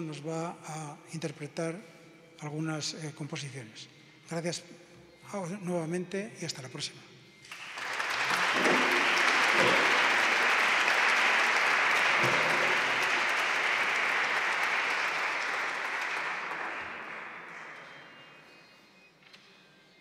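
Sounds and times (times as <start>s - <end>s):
audience applauding: 7.5s - 18.6s.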